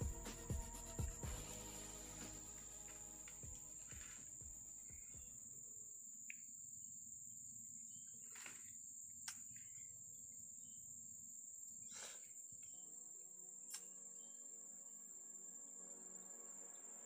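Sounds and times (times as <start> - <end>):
high-pitched insect trill: 0.0 - 17.0.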